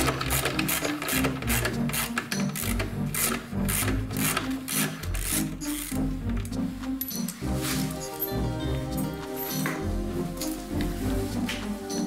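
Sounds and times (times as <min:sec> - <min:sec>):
ratchet wrench clicking: 0:00.0 - 0:06.0
background music with bass line: 0:00.0 - 0:12.0.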